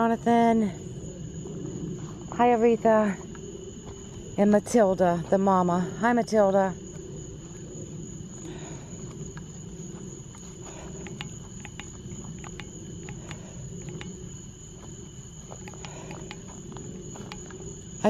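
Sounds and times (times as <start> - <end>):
crickets trilling: 0.0 - 18.0
faint clicks: 10.9 - 14.2, 15.5 - 17.6.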